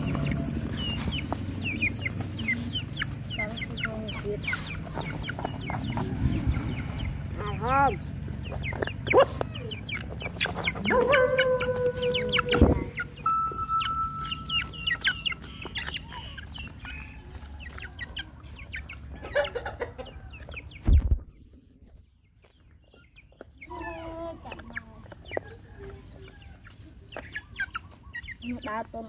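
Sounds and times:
hen clucking: 0.0s - 29.0s
clicks of eating and pecking: 14.2s - 18.9s.

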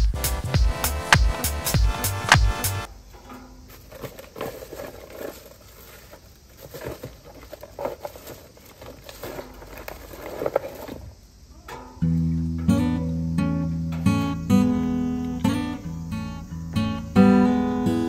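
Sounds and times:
plastic bag rustling: 3.4s - 11.5s.

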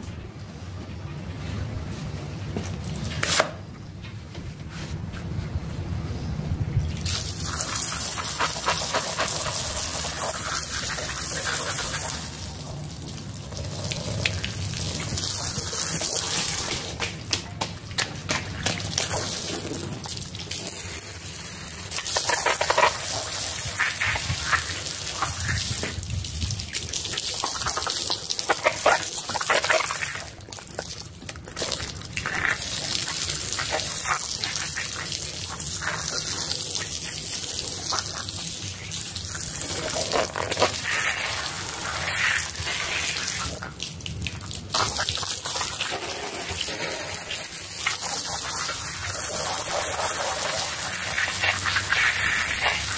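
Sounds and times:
pressure washer spraying water: 7.0s - 12.6s.

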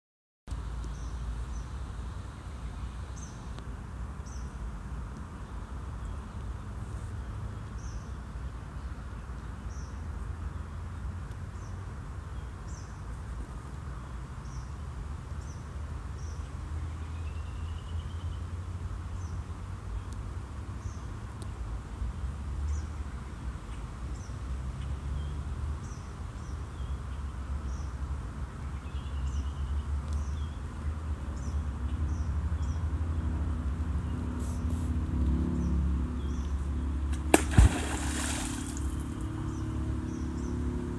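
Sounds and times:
beaver tail slapping water: 37.1s - 39.5s
splashing water: 37.1s - 39.5s.

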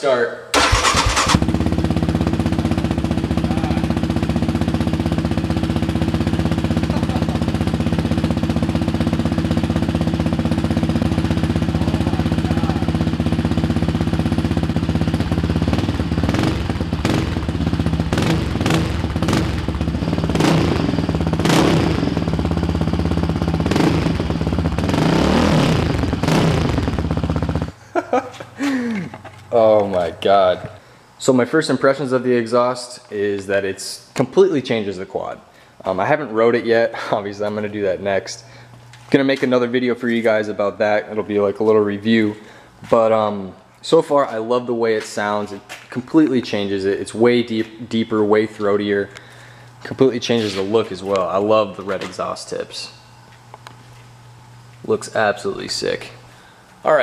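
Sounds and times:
engine throttle blips: 0.5s - 27.9s
engine idling with throaty note: 0.6s - 27.9s.

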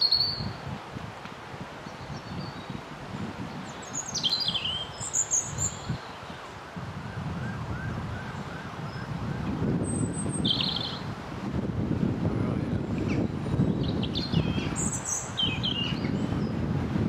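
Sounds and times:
robin singing: 0.0s - 0.6s, 1.8s - 2.8s, 3.5s - 6.5s, 9.8s - 11.1s, 12.8s - 16.6s.

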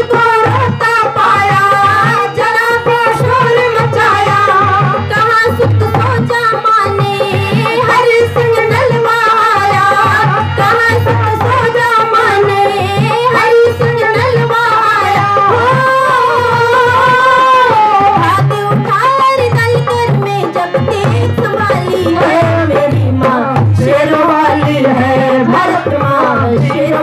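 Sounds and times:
musical accompaniment: 0.0s - 27.0s
woman singing devotional song: 0.0s - 27.0s
steady drum beat: 7.2s - 27.0s.

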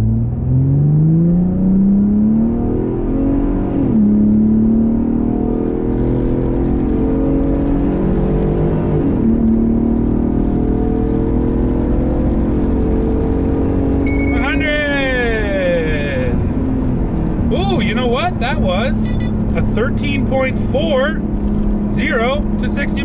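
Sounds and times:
truck engine at full throttle: 0.0s - 23.0s
transmission upshifts: 10.8s - 23.0s.

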